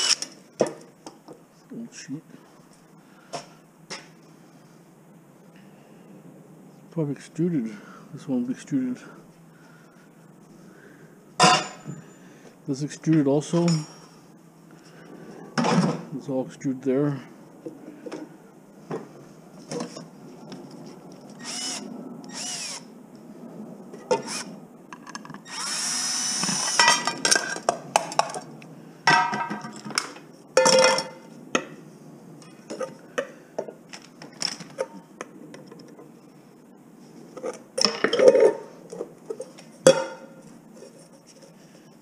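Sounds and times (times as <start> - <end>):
cordless drill whining: 0.0 - 0.3, 21.4 - 22.9, 24.2 - 24.5, 25.4 - 26.8.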